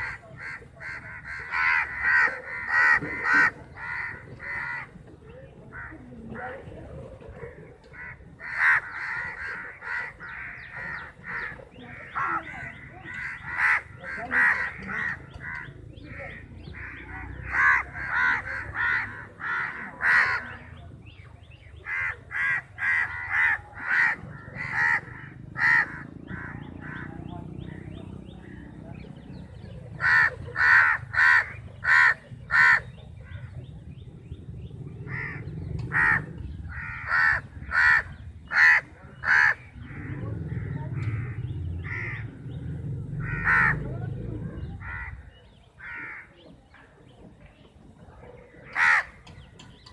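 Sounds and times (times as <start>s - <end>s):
crows cawing: 0.0s - 5.0s, 8.0s - 20.7s, 21.8s - 27.2s, 30.0s - 33.4s, 35.1s - 42.4s, 43.1s - 43.8s, 44.8s - 46.3s, 48.6s - 49.2s.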